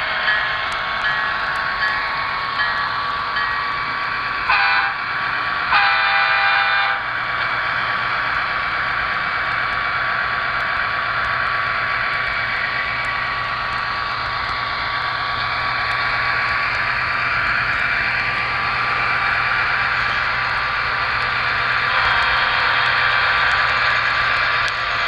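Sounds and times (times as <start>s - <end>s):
train running rush: 0.0s - 25.0s
train horn blasts: 4.5s - 5.0s, 5.7s - 7.0s.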